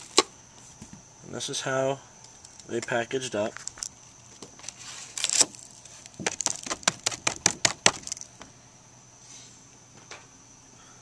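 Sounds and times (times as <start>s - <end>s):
sharp crackles and clicks: 2.3s - 8.4s
paper packets rustling: 2.4s - 8.3s.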